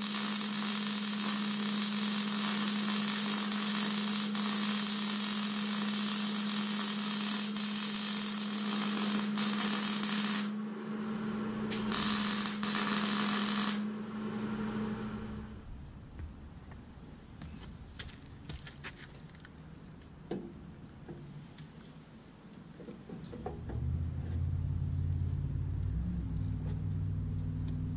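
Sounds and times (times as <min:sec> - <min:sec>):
welding arc crackling sizzle: 0:00.0 - 0:10.6, 0:11.7 - 0:15.6
steady hum: 0:00.0 - 0:18.7.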